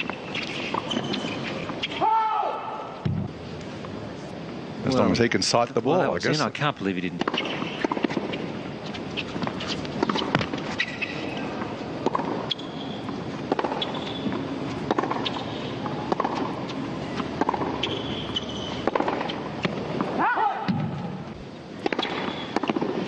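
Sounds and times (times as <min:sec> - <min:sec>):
shoes squeaking on court: 0:00.0 - 0:02.0, 0:07.2 - 0:20.2, 0:21.8 - 0:22.8
steady background noise: 0:00.0 - 0:23.0
tennis racket hitting ball: 0:14.8 - 0:20.9, 0:21.8 - 0:23.0.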